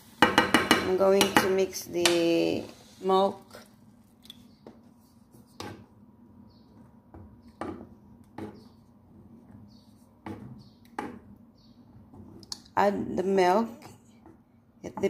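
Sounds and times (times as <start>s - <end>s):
spoon knocking on saucepan: 0.2s - 1.6s
wooden spoon stirring porridge: 2.6s - 6.0s, 6.7s - 12.5s.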